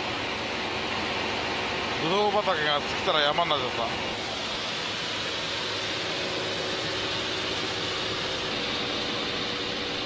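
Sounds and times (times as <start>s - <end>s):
propeller plane engine drone in cabin: 0.0s - 10.0s.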